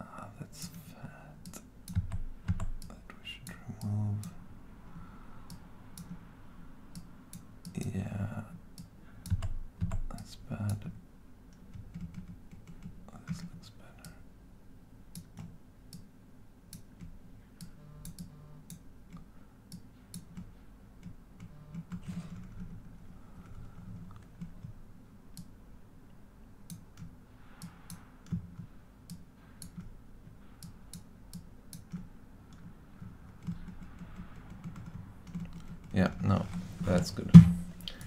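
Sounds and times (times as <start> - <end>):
low background hum: 0.0 - 38.0
computer mouse and keyboard clicks: 1.4 - 3.0, 26.7 - 29.9, 30.5 - 36.0.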